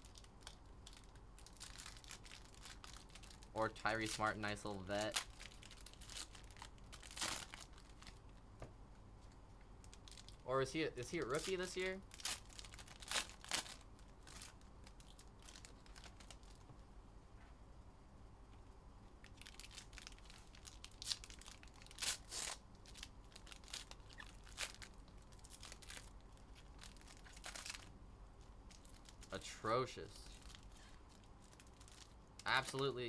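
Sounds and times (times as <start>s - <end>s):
foil wrappers crinkling and tearing: 0.0s - 8.2s, 11.0s - 16.6s, 19.2s - 27.9s, 28.7s - 33.0s.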